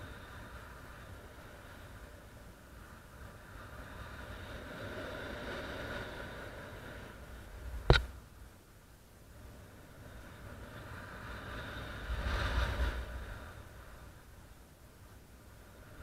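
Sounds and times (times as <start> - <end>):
sharp knock on camera: 7.8 - 8.1
wind rushing over microphone: 9.3 - 14.6.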